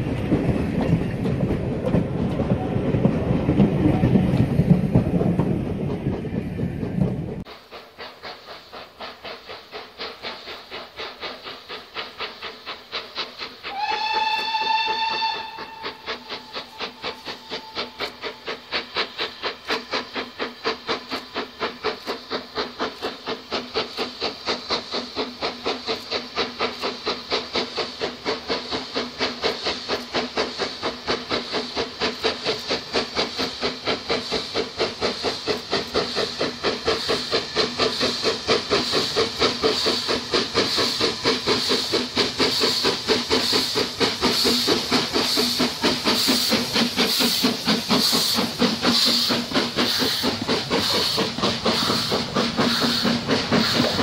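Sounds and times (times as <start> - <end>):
steam locomotive chuffing: 0.0 - 54.0.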